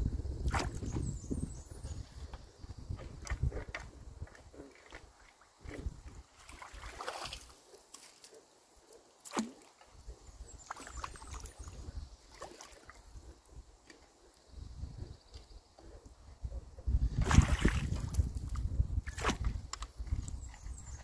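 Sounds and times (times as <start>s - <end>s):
water sloshing and splashing: 0.4s - 1.2s, 2.8s - 8.3s, 9.2s - 13.2s, 17.1s - 21.0s.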